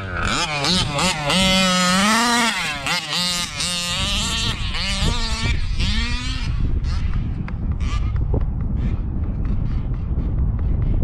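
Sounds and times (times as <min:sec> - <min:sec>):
two-stroke engine revving: 0:00.0 - 0:08.2.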